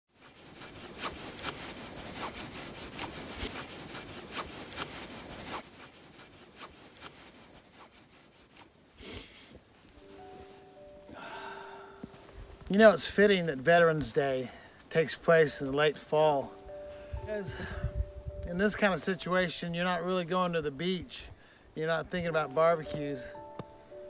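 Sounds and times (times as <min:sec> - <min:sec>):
cloth flag flapping: 0:00.2 - 0:08.9
wind rushing on microphone: 0:17.1 - 0:18.5.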